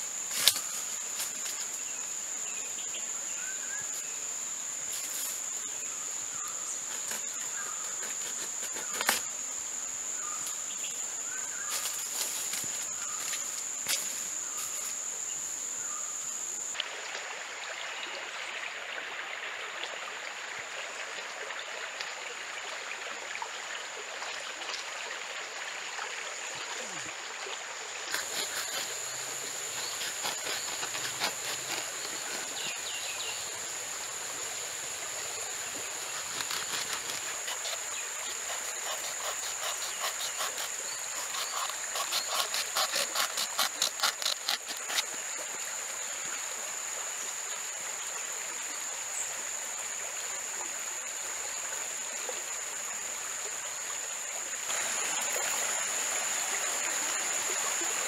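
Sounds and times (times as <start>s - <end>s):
machete cutting wood: 0.3s - 1.4s, 6.9s - 9.3s, 28.1s - 32.8s, 36.2s - 45.2s
stream flowing: 16.7s - 58.0s.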